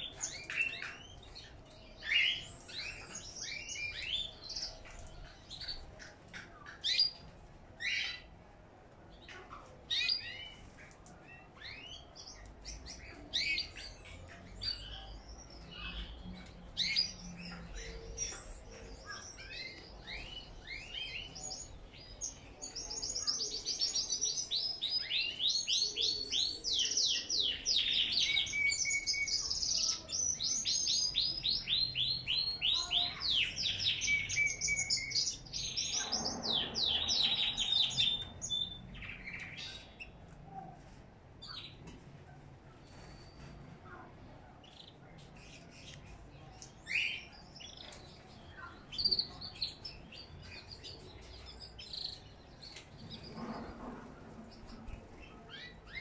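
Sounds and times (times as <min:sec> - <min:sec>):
birds chirping: 0:00.0 - 0:40.3
birdsong with fast trills: 0:11.7 - 0:40.2.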